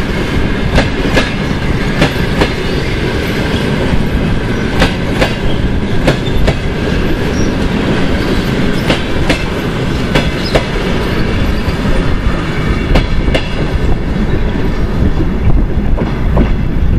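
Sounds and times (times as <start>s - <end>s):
steady train rumble: 0.0s - 16.9s
train wheels clacking over rail joints: 0.6s - 14.1s.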